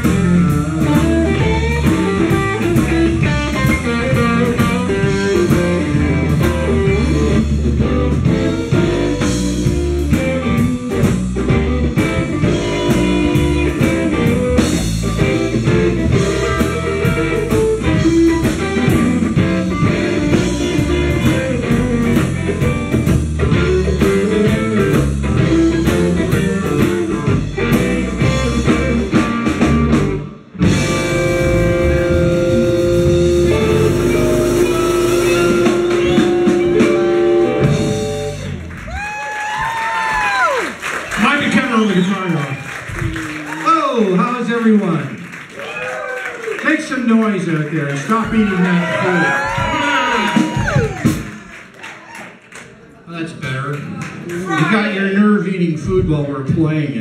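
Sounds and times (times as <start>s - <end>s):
electric guitar: 0.0s - 41.2s, 48.7s - 51.8s
blues band playing: 0.0s - 57.0s.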